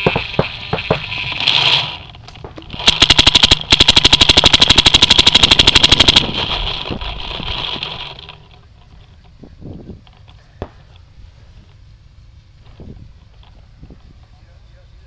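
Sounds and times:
paintball marker rapid firing: 0:02.7 - 0:07.1.

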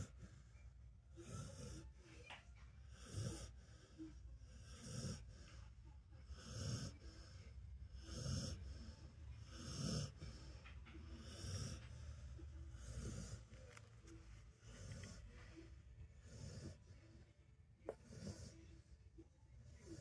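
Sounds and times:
dog snoring: 0:01.1 - 0:02.0, 0:02.8 - 0:05.6, 0:06.2 - 0:13.7, 0:14.5 - 0:15.4, 0:16.1 - 0:17.2, 0:17.8 - 0:18.8, 0:19.6 - 0:20.0.

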